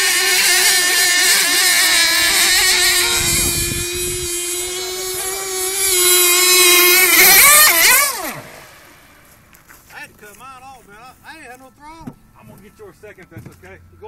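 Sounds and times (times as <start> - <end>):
rc boat motor whine: 0.0 - 9.6.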